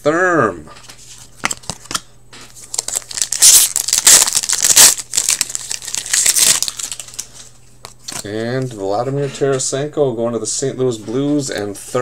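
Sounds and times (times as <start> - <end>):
foil wrapper crinkling and tearing: 2.6 - 7.5.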